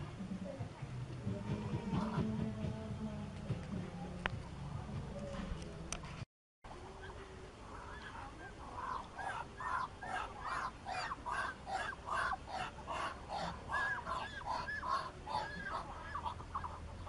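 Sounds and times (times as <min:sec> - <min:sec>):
duck calling: 0:07.7 - 0:17.0.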